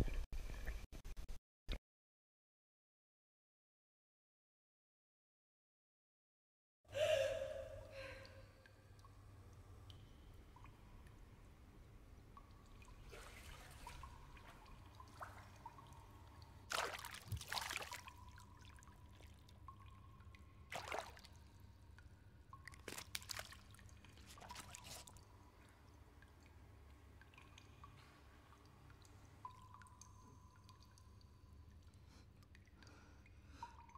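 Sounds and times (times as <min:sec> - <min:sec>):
small splashes in pool water: 0:12.3 - 0:26.6.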